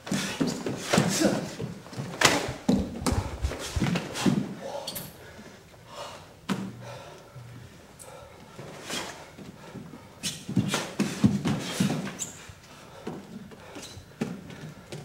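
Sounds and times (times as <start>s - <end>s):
bare feet on wooden floor: 0.0s - 4.5s.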